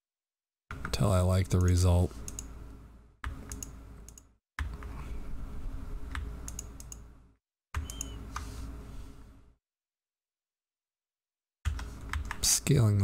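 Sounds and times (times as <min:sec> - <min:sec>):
keyboard and mouse clicks: 0:00.7 - 0:02.5, 0:03.2 - 0:05.0, 0:06.1 - 0:07.1, 0:07.8 - 0:08.5, 0:11.7 - 0:12.5
low background hum: 0:00.7 - 0:09.5.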